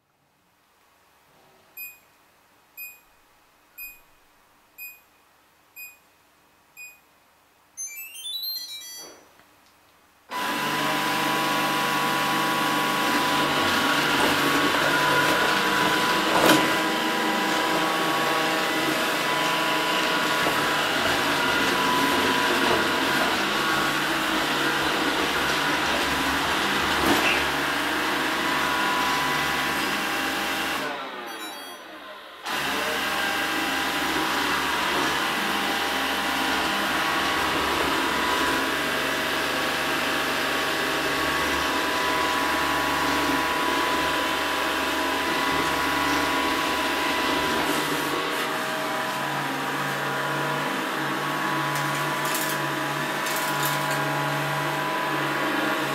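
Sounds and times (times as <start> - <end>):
short beeps: 1.8 - 2.1, 2.8 - 3.2, 3.8 - 4.2, 4.8 - 5.2, 5.8 - 6.2, 6.8 - 7.1, 7.8 - 9.3, 31.3 - 32.0
rising start-up chime: 7.8 - 9.2, 31.3 - 32.0.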